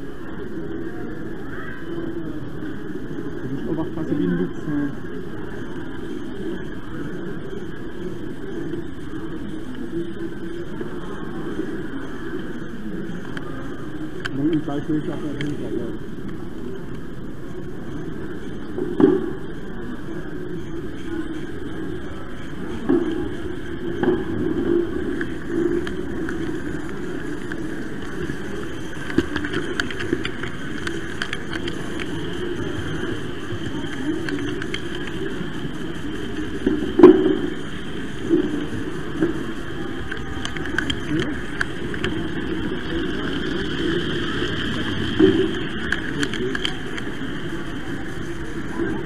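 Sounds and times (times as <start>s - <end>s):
model train motor and wheel rumble: 24.7s - 49.0s
sharp clicks: 28.9s - 32.2s, 33.9s - 35.4s, 40.0s - 42.2s.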